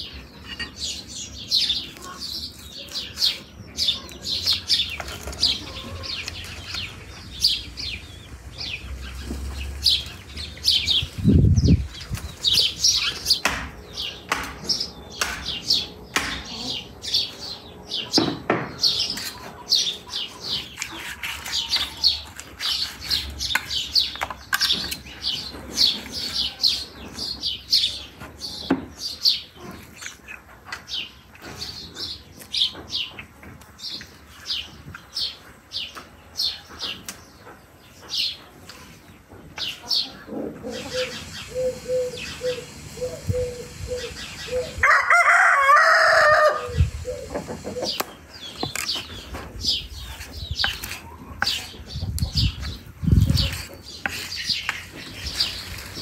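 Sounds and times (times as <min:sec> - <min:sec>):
small birds chirping: 0:00.0 - 0:44.9, 0:45.8 - 0:56.0
rooster crowing: 0:44.8 - 0:46.8.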